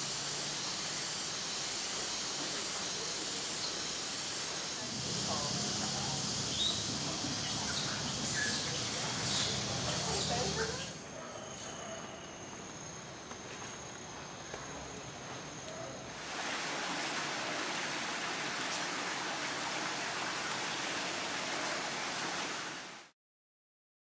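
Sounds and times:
high insect buzz: 0.0 - 13.4
stream rushing over rocks: 16.2 - 23.1.

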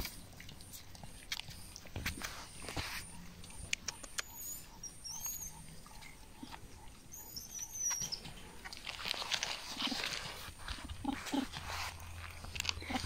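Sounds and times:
monkeys scuffling and rustling: 0.0 - 3.4, 7.4 - 13.0
monkey high chirps: 3.1 - 8.3.

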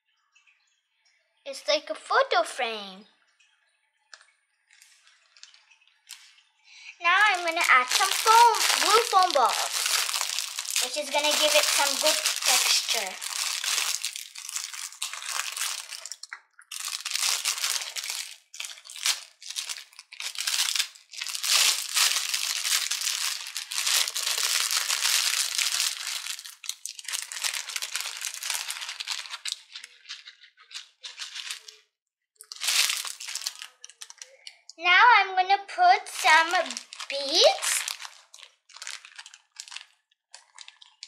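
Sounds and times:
foam balls rustling in plastic packet: 7.0 - 34.5, 36.1 - 41.0.

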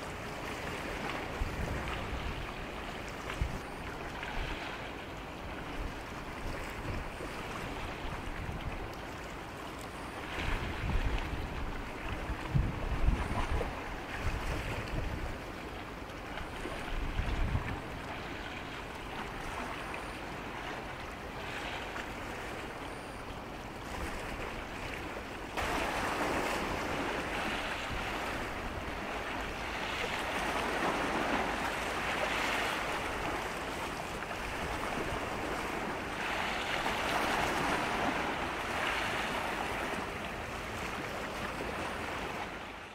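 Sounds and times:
sea water washing: 0.0 - 42.9
wind on microphone: 1.3 - 2.6, 3.2 - 4.7, 10.3 - 15.5, 16.6 - 18.0.

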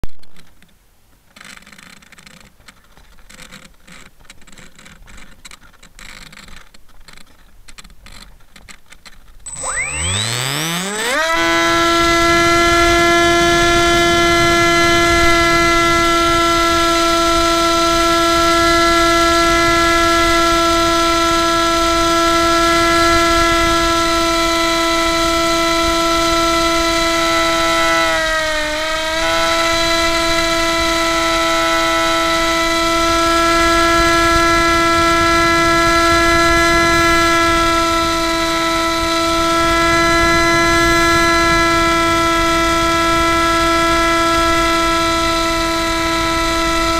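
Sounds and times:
electric motor and propeller whine: 9.5 - 46.9.

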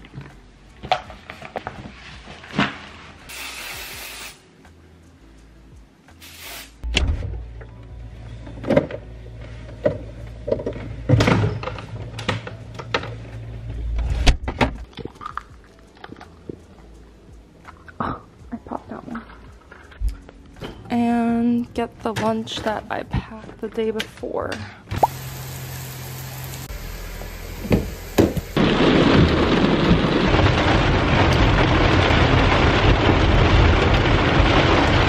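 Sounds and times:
short hiss: 3.3 - 4.5, 6.1 - 6.8
lo-fi hip-hop music: 12.2 - 22.6.

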